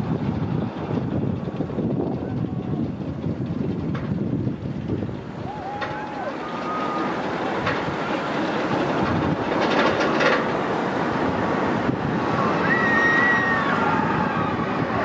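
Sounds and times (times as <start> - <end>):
roller coaster wheels clattering: 0.0 - 15.0.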